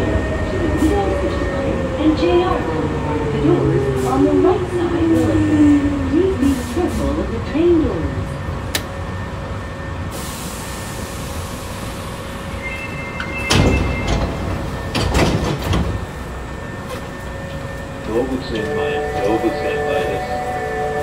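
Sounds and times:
train equipment humming: 0.0s - 21.0s
sliding doors thudding: 13.3s - 16.2s.

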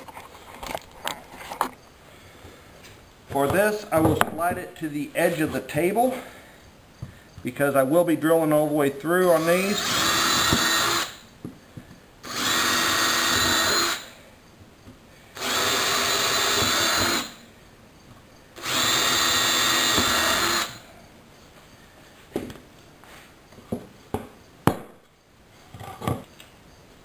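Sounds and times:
power drill boring through wood: 9.2s - 11.2s, 12.2s - 14.1s, 15.4s - 17.4s, 18.6s - 20.8s.

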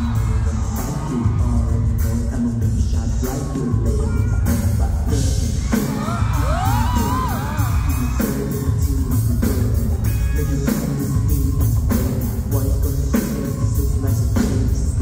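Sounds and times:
fans screaming and whooping: 0.0s - 2.6s, 5.4s - 10.8s
live song with heavy bass: 0.0s - 15.0s.

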